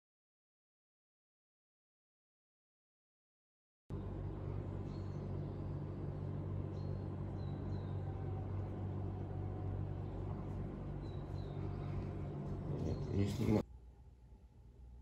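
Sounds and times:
low machine hum: 0:03.9 - 0:15.0.

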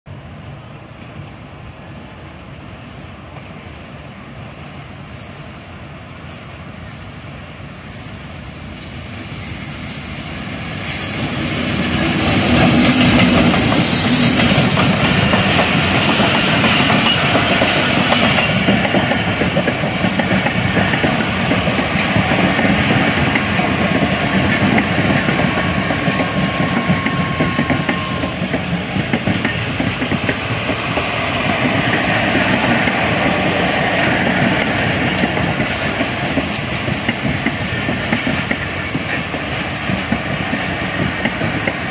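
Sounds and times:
train approaching: 0:00.1 - 0:41.9
train wheels clattering over rail joints: 0:10.9 - 0:41.9.

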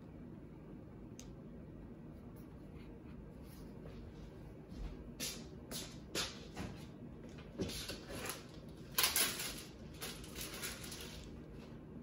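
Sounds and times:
packaging rustling: 0:07.9 - 0:11.4
small parts being handled: 0:07.9 - 0:11.4.

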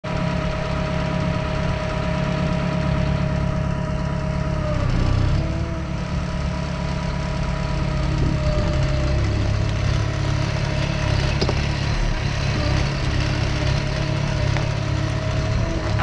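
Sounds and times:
diesel engine idling: 0:00.0 - 0:16.0
steady whine: 0:09.2 - 0:16.0.

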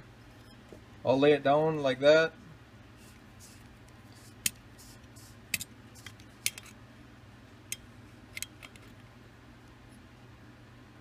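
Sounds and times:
faint steady hum: 0:00.0 - 0:11.0
caliper metallic clicks and taps: 0:05.5 - 0:06.7, 0:07.7 - 0:08.9.

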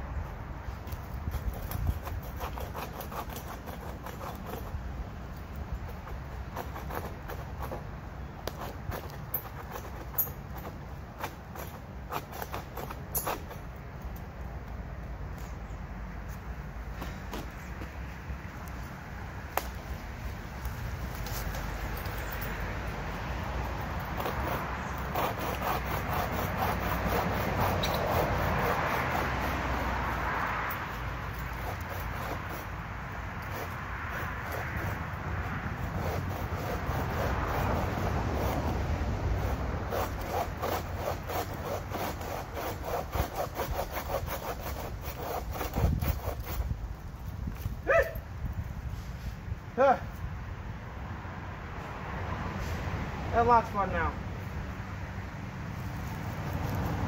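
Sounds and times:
hand saw cutting branch: 0:00.7 - 0:13.7, 0:20.6 - 0:48.2.

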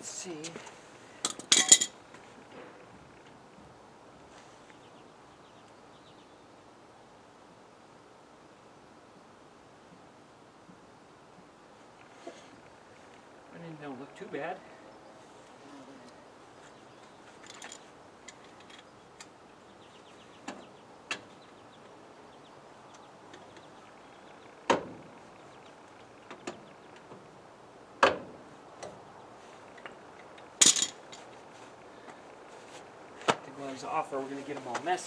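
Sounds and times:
hand tools clinking on car parts: 0:01.2 - 0:02.0, 0:17.3 - 0:19.3, 0:29.8 - 0:31.3.

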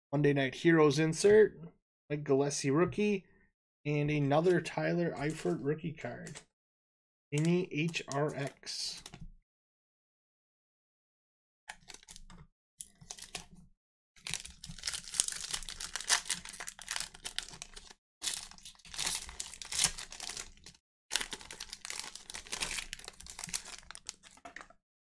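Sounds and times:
wrappers crinkling and tearing: 0:14.2 - 0:24.7.

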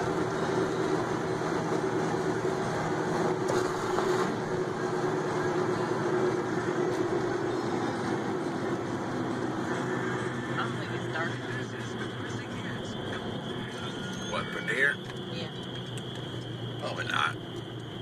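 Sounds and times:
car engine hum: 0:00.0 - 0:18.0
road noise: 0:00.0 - 0:18.0.

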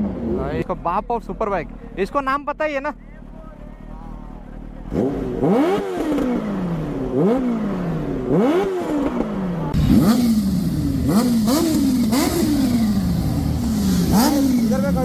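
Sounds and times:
motorcycle engine revving: 0:00.0 - 0:00.8, 0:03.9 - 0:15.0.

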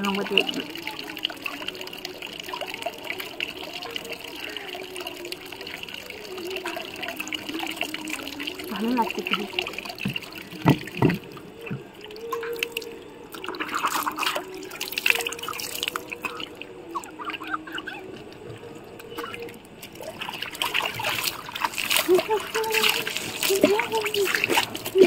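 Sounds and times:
water dripping onto floor: 0:00.0 - 0:17.6, 0:18.2 - 0:25.0
water splashed over body: 0:00.0 - 0:25.0.

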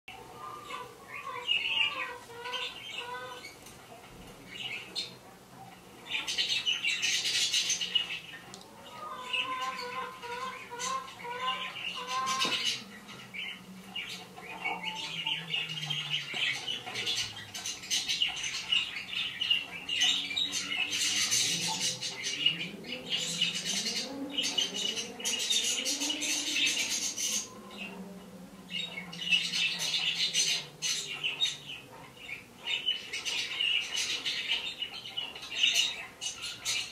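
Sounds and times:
parrots screeching and squawking: 0:00.1 - 0:03.6, 0:06.1 - 0:27.9.

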